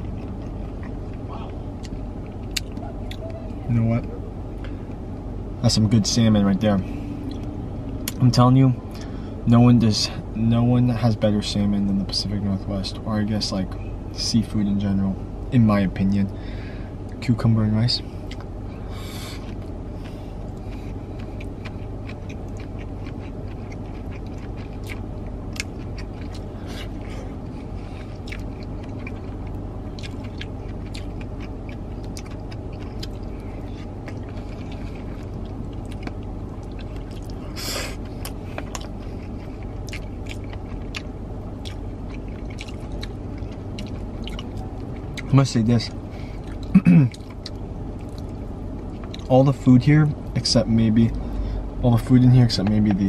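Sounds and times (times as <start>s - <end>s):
close-up chewing: 0.0s - 3.4s, 18.2s - 45.4s
low hum inside a car: 0.0s - 53.0s.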